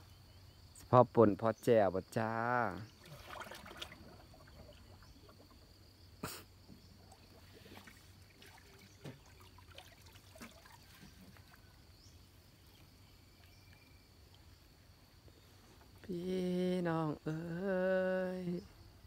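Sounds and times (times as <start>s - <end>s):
water trickling and dripping: 2.6s - 5.8s, 7.0s - 11.9s.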